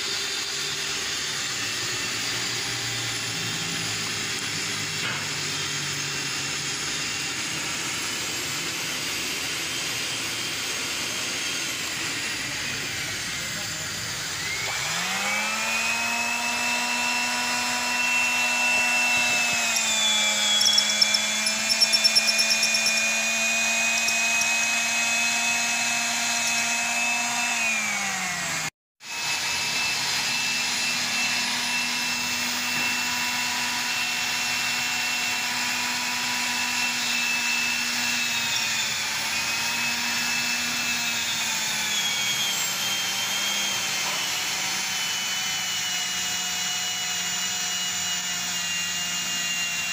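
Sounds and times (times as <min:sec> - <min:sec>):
drill press motor whining: 0:00.0 - 0:49.9.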